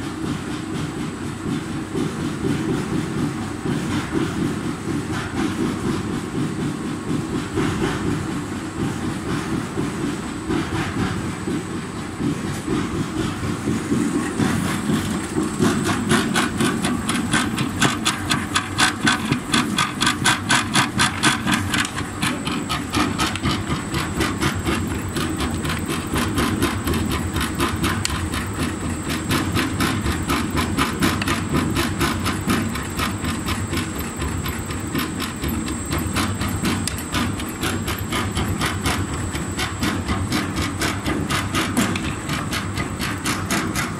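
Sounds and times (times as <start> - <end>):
pellet press machine drone: 0.0 - 43.9
fast regular clacking: 10.5 - 43.9.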